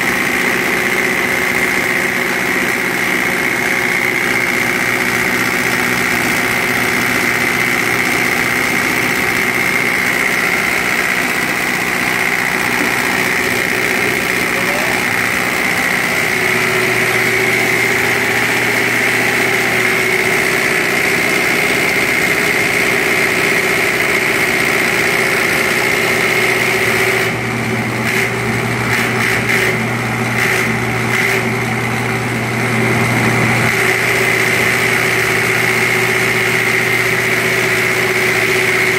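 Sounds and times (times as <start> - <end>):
deeper hum: 0.0 - 22.2.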